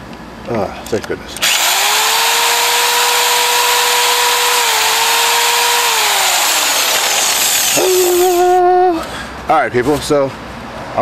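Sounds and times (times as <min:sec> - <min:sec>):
electric drill running: 0:01.4 - 0:08.4.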